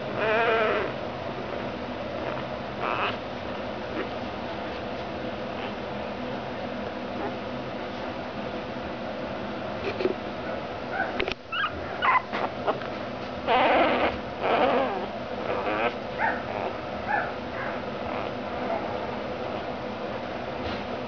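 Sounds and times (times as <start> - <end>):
puppy crying and whimpering: 0.0 - 3.2, 5.6 - 5.8, 11.0 - 12.8, 13.4 - 19.7.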